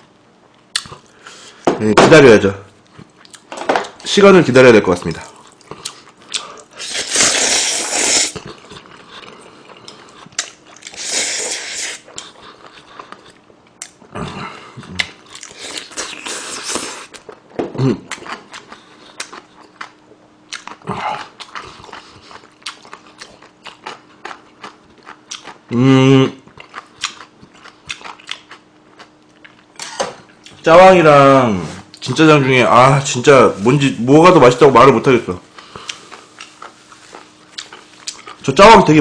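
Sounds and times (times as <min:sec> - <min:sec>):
noodle slurping: 0:06.7 - 0:10.0, 0:10.8 - 0:12.8
wet chewing and lip smacks: 0:08.4 - 0:11.0, 0:18.1 - 0:25.6, 0:26.4 - 0:29.7, 0:35.6 - 0:38.4.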